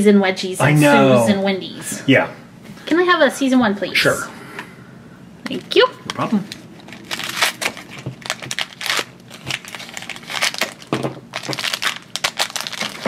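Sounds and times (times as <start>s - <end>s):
plastic bag crinkling: 6.5s - 13.0s.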